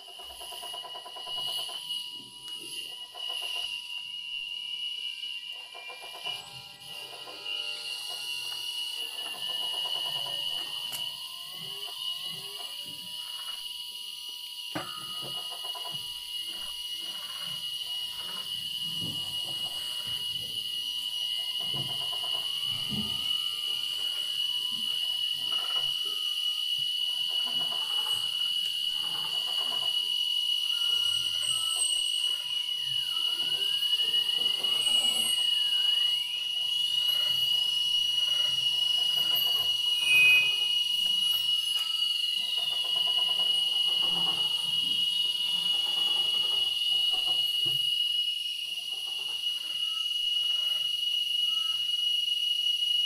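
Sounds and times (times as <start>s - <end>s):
steady high-pitched tone: 0.0s - 53.0s
electronic beep: 30.6s - 42.8s.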